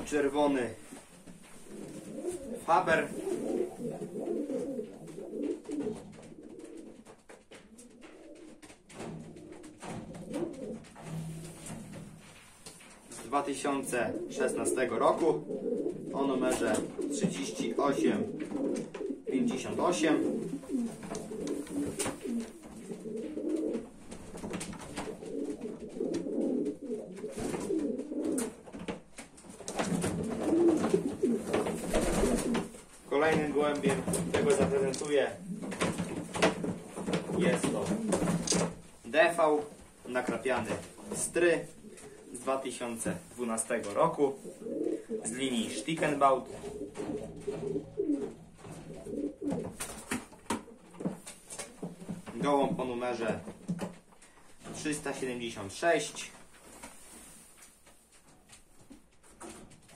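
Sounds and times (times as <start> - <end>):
pigeons cooing: 1.6 - 12.0, 13.7 - 28.9, 29.5 - 38.7, 40.9 - 43.4, 44.1 - 52.1.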